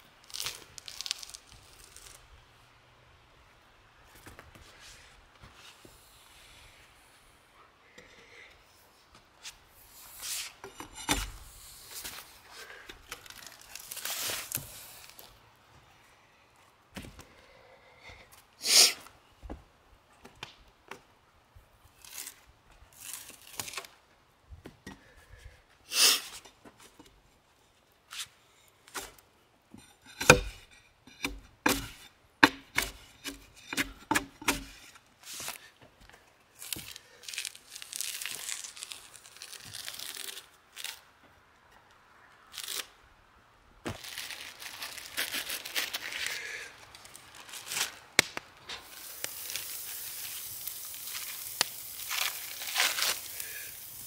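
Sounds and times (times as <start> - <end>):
bark ripping: 0.2 - 2.2, 36.7 - 41.0, 49.0 - 54.0
wood fire crackling: 45.7 - 54.0.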